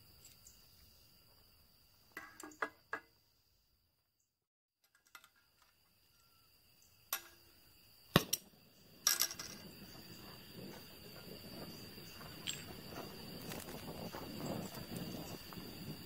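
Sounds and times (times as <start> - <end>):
crickets trilling: 0.0 - 4.2, 4.8 - 16.0
torch flame hissing: 9.6 - 16.0.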